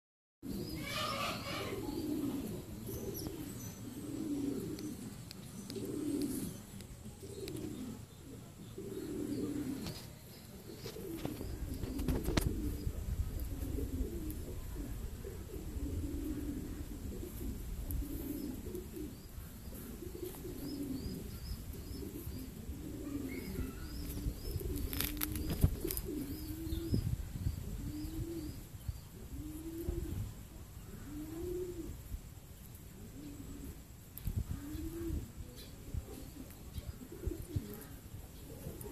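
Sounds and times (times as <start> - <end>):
pigeons cooing: 0.4 - 38.9
small bird chirping: 0.5 - 13.0, 18.1 - 29.2.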